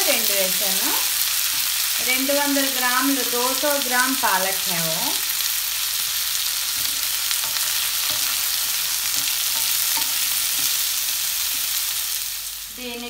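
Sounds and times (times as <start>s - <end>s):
potatoes sizzling in oil: 0.0s - 13.0s.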